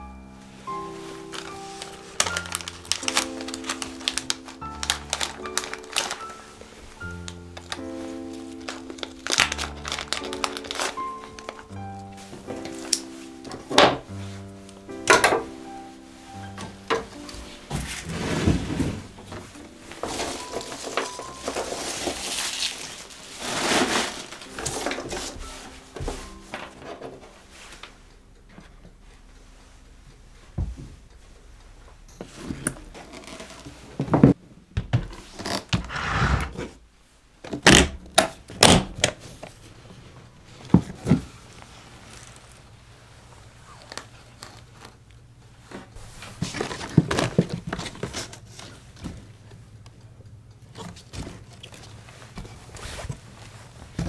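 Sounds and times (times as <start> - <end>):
crinkling: 0.0 - 34.4, 37.4 - 54.0
handling knocks and clicks: 1.3 - 6.3.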